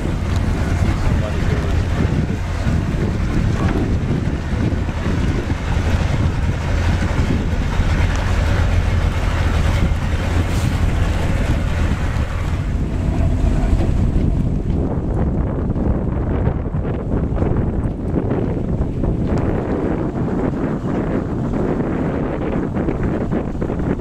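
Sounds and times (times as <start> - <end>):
wind buffeting the microphone: 0.0 - 24.0.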